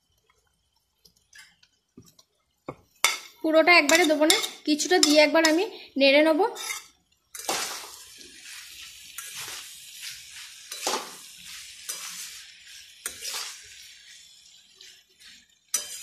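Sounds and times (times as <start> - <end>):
frying sizzle: 0.0 - 16.0
metal spatula scraping pan: 3.0 - 5.7, 6.4 - 16.0.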